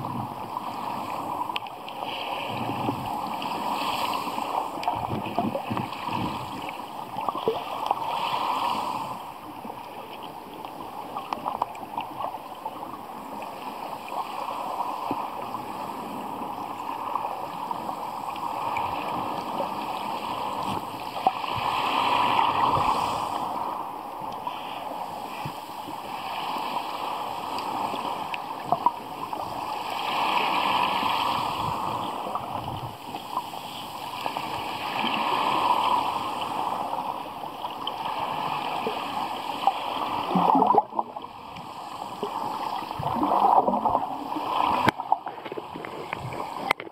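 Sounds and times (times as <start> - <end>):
underwater water wash: 0.0 - 46.9
pebbles clicking underwater: 40.4 - 40.9.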